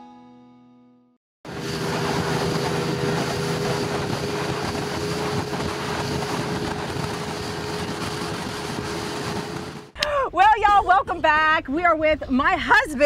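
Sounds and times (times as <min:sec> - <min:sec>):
wind on microphone: 0:01.5 - 0:09.9
motorboat engine drone: 0:01.5 - 0:10.0
water noise: 0:01.5 - 0:10.0.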